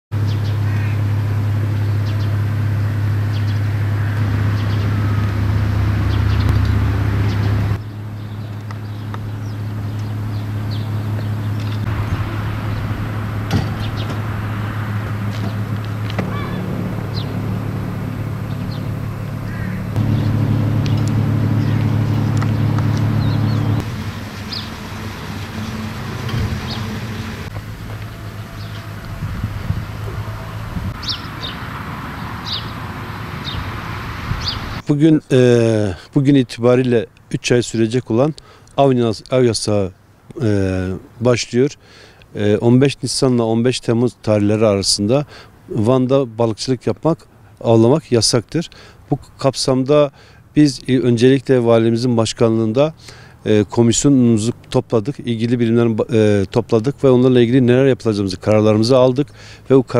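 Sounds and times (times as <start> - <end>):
engine humming: 0.2 - 34.8
birds chirping: 0.2 - 34.9.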